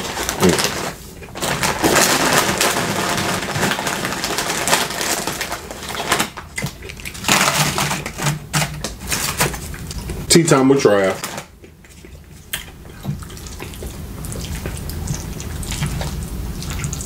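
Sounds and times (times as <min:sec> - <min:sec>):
chewing and mouth sounds: 0:05.9 - 0:07.3, 0:09.6 - 0:10.3, 0:11.5 - 0:17.0.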